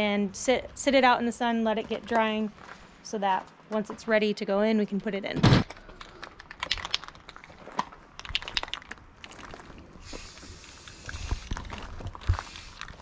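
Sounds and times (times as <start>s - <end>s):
spray paint hissing: 10.0s - 11.6s, 12.3s - 13.0s
spray can rattling: 10.1s - 13.0s.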